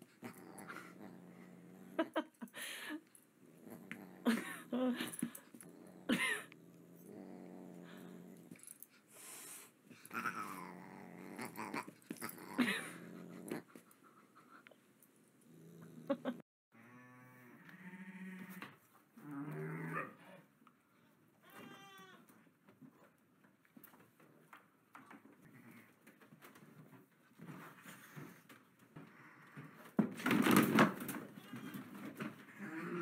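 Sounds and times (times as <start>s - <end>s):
dog growling: 0.0s - 2.3s, 3.4s - 9.0s, 9.9s - 13.9s, 15.5s - 16.4s, 32.5s - 33.0s.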